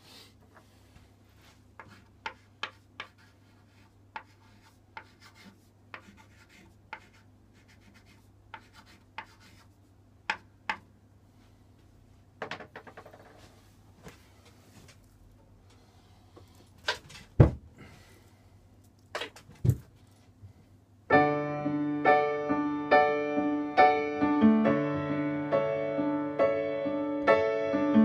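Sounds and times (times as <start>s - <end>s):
chalk scratching strokes: 1.3s - 9.9s
chalk tapping on board: 1.8s - 10.8s.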